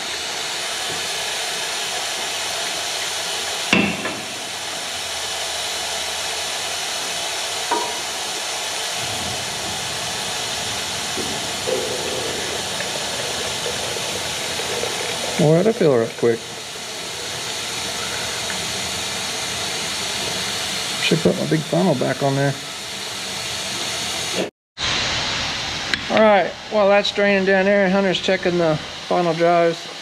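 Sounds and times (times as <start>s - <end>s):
sharp knock: 3.7s - 4.4s
oil pouring into canister: 10.2s - 21.9s.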